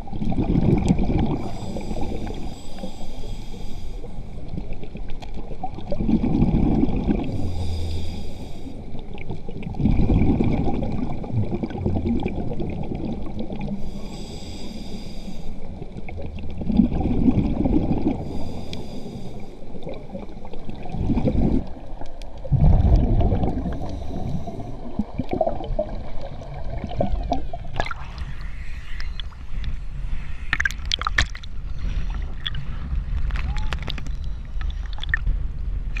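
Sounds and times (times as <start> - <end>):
exhaled bubbles rumbling: 0.0 - 3.0, 4.0 - 14.9, 15.6 - 36.0
scuba regulator breathing hiss: 1.4 - 4.4, 7.3 - 8.9, 13.8 - 15.7, 18.2 - 19.7, 23.6 - 24.8
water sloshing and splashing: 19.7 - 36.0.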